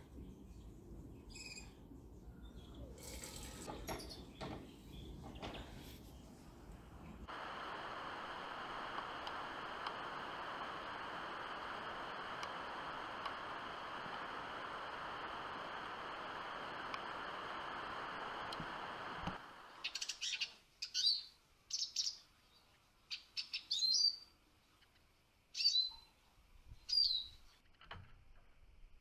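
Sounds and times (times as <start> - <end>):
steady hiss: 0.0 - 20.8
birds whistling calls: 1.3 - 5.9, 26.9 - 27.4.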